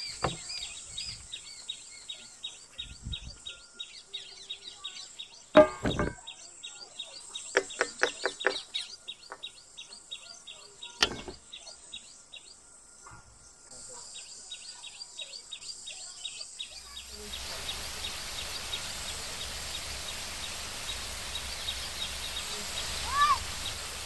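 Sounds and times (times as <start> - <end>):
small bird chirping: 0.0 - 24.0
steel bowl and utensils clinking: 5.6 - 6.2.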